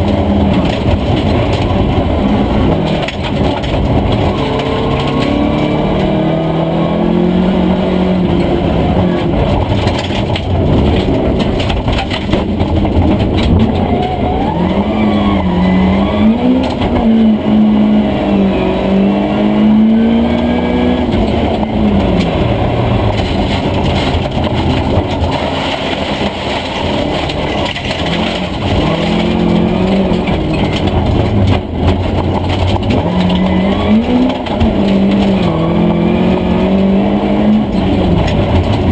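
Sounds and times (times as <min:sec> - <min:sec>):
car engine revving: 0:00.0 - 0:38.9
tyres on gravel: 0:21.0 - 0:38.9.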